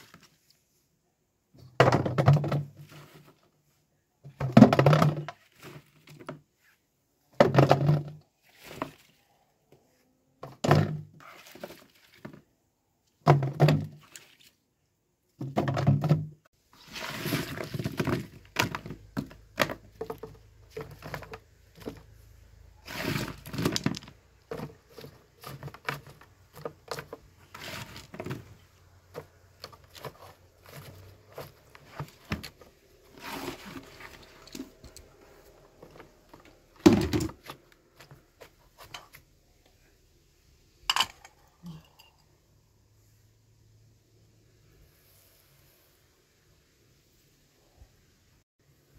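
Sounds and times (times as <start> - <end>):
rummaging among apples: 8.4 - 9.4, 22.8 - 36.6.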